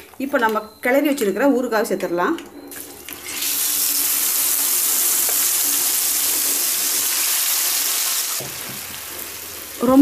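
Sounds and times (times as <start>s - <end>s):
hot oil sizzling: 3.1s - 10.0s.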